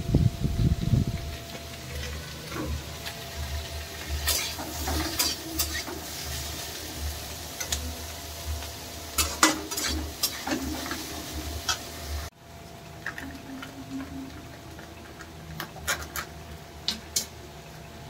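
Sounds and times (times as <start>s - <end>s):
food sizzling: 0.0s - 18.0s
metal spoon scraping pan: 4.1s - 6.6s, 9.2s - 11.9s.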